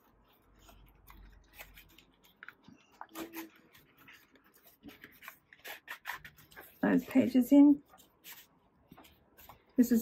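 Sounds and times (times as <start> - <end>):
paper rustling and tapping: 0.0 - 7.3, 7.9 - 9.8.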